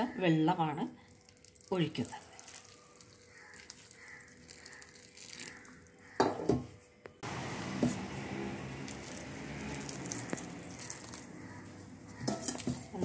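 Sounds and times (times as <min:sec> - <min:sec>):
hot water pouring into bowl: 0:01.1 - 0:05.9, 0:08.7 - 0:11.4.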